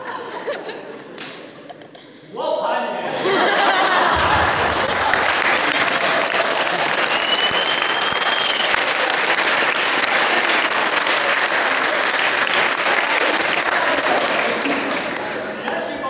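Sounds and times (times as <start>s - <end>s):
audience applauding: 3.8s - 15.7s
high whistle: 6.9s - 8.9s.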